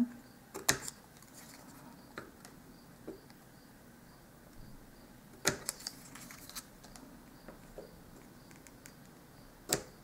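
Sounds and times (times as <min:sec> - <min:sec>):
cardstock folding clicks and crackles: 0:00.5 - 0:02.6, 0:05.4 - 0:07.1, 0:08.2 - 0:09.9.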